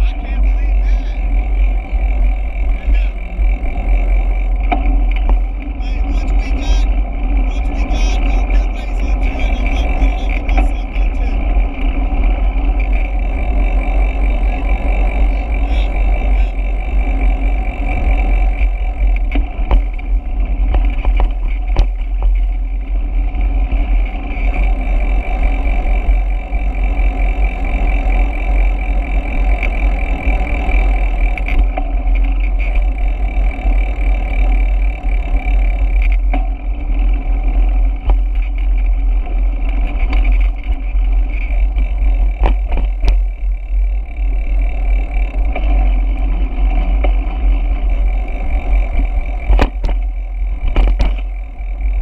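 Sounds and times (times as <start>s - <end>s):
road noise: 0.0s - 52.0s
wind rumble: 0.0s - 52.0s.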